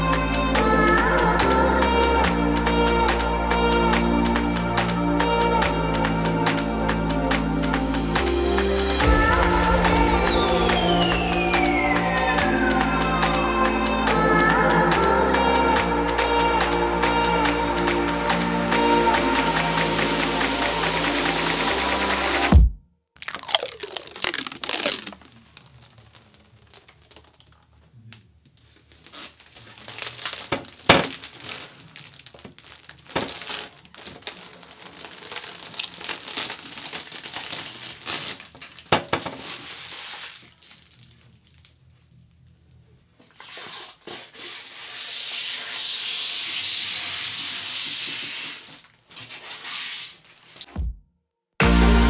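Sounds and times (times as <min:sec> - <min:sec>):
plastic film crinkling and tearing: 0:23.2 - 0:27.8, 0:28.5 - 0:42.0, 0:48.0 - 0:50.6.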